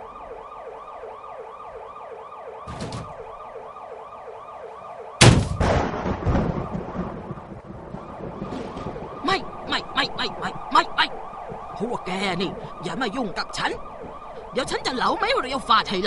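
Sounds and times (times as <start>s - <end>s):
electronic siren whooping: 0.0s - 5.3s, 6.1s - 16.0s
loud bang with rumble: 5.2s - 7.3s.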